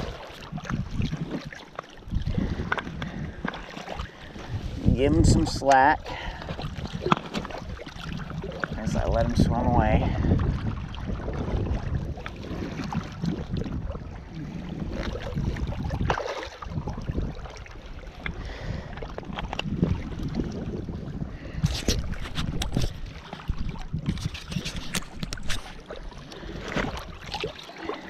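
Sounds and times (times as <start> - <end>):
small waves lapping: 0.0 - 28.0
wind rumbling on microphone: 0.0 - 28.0
sharp splashes in water: 15.0 - 17.7.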